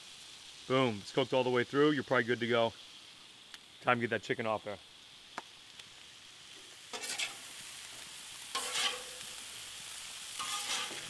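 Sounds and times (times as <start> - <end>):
food sizzling on a griddle: 0.0 - 11.0
metal spatula scraping griddle: 6.9 - 7.6, 8.5 - 9.4, 10.3 - 11.0.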